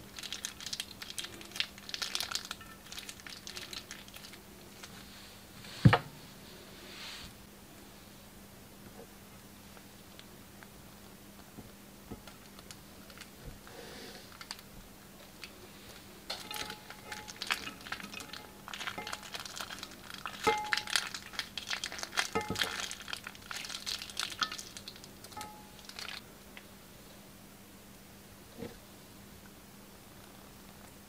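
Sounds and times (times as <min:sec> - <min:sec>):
plastic piping bag crinkling: 0:00.0 - 0:05.1, 0:12.3 - 0:13.4, 0:14.3 - 0:26.2.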